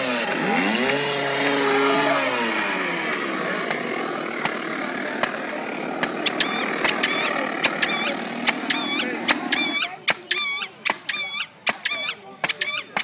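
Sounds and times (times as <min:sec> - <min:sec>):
high squeak from stilts: 0:06.2 - 0:13.0.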